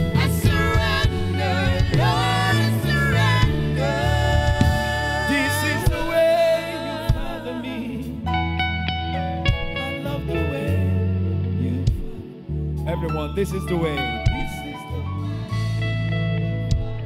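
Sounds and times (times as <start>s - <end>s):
backing singer: 0.0s - 8.4s
instrumental accompaniment: 0.0s - 17.0s
man singing long held notes: 0.3s - 8.3s.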